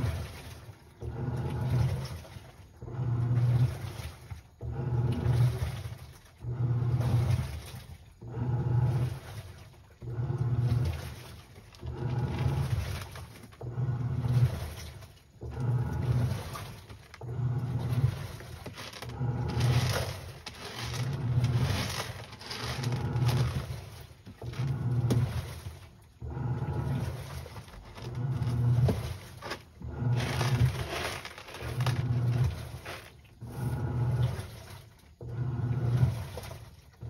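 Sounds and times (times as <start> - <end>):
cat scratching in pellet litter: 15.8 - 26.0, 26.6 - 34.9.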